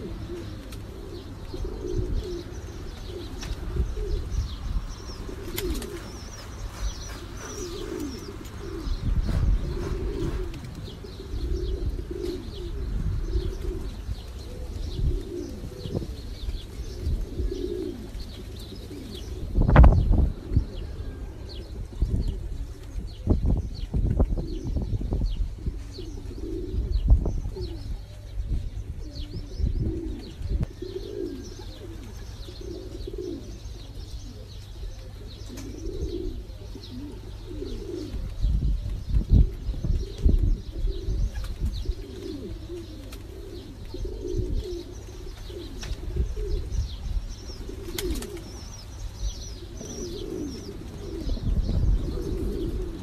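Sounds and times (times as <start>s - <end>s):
pigeons cooing: 0.0s - 53.0s
low thuds and rumble: 9.0s - 9.9s.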